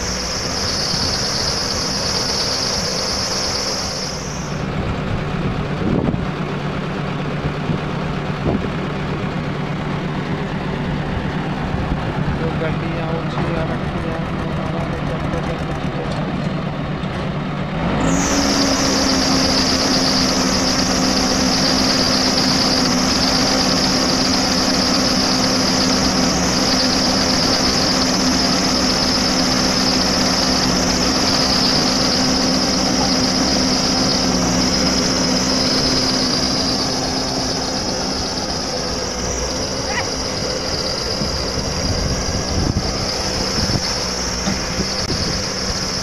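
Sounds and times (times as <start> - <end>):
high-pitched whine: 0.0 - 4.9, 17.9 - 46.0
diesel engine revving: 0.0 - 46.0.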